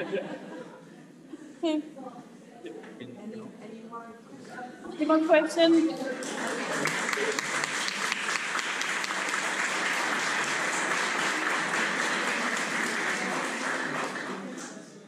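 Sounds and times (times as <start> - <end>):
audience applauding: 5.9 - 14.9.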